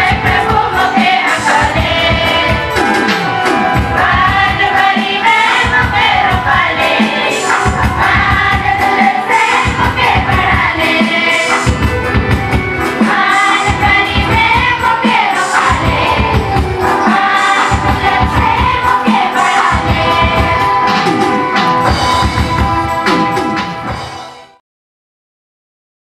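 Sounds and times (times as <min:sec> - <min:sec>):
group singing: 0:00.0 - 0:22.7
drum beat: 0:00.0 - 0:24.2.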